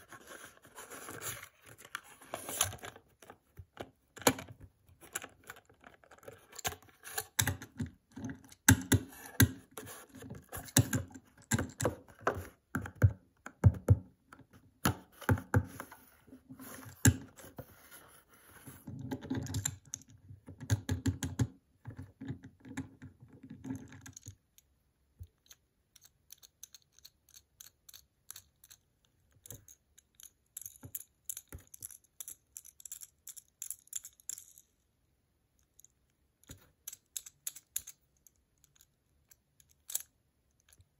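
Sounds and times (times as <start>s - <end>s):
toy car clicking and tapping: 24.1s - 34.7s, 35.6s - 40.8s.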